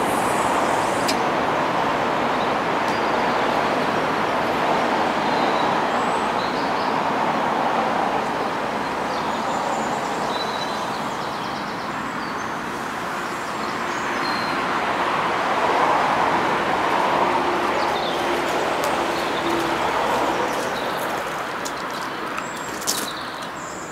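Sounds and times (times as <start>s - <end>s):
outdoor rushing noise: 14.6s - 23.2s
small birds chirping: 17.7s - 23.9s.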